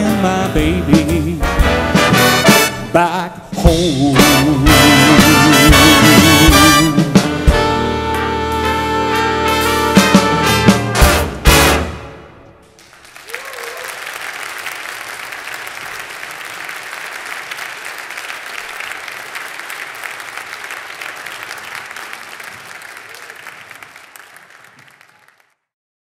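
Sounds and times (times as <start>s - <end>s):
audience applauding: 12.7s - 25.7s.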